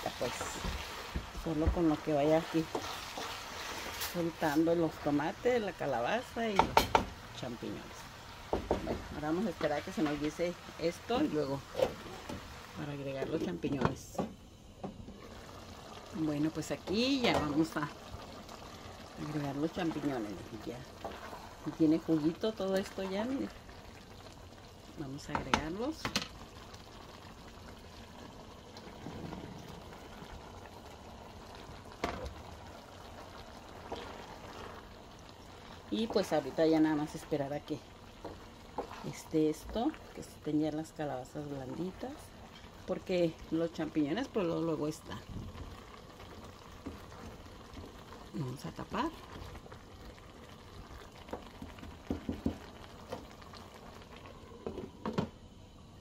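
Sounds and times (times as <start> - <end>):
stew simmering in a pot: 0.0 - 56.0.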